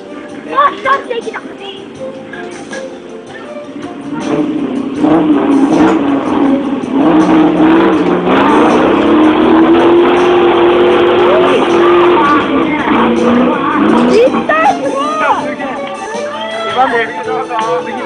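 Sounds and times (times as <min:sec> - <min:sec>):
off-road vehicle engine revving: 0:03.7 - 0:16.2.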